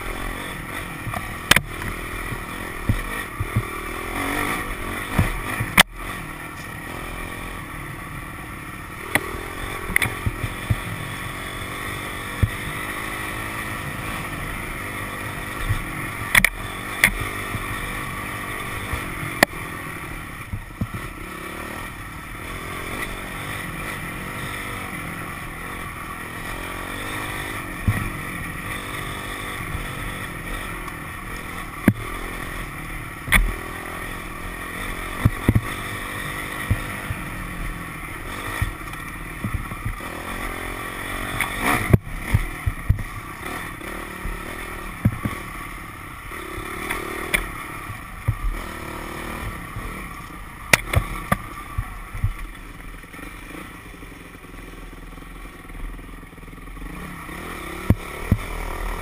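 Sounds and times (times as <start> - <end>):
dirt bike engine revving: 0.0 - 59.0
sharp knocks of bike on trail: 1.0 - 4.4, 5.0 - 6.0, 9.0 - 10.9, 15.4 - 17.8, 31.8 - 32.1, 33.2 - 33.7, 35.0 - 37.2, 38.3 - 40.1, 41.1 - 45.5, 50.6 - 52.5, 57.6 - 58.5.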